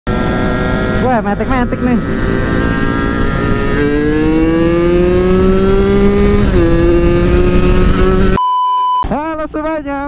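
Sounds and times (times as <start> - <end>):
motorcycle engine accelerating: 0.1 - 8.4.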